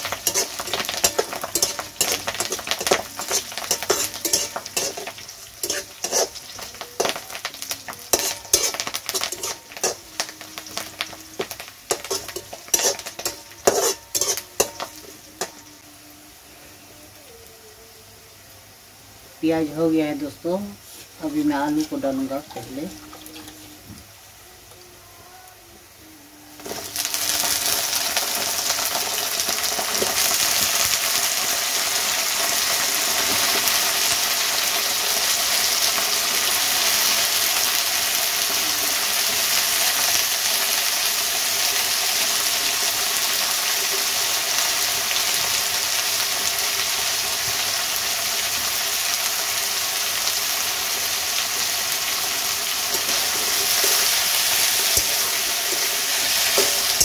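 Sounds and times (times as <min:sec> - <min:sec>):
metal spatula stirring: 0:00.0 - 0:15.6, 0:20.8 - 0:23.8, 0:52.9 - 0:57.0
potatoes sizzling in hot oil: 0:00.0 - 0:57.0.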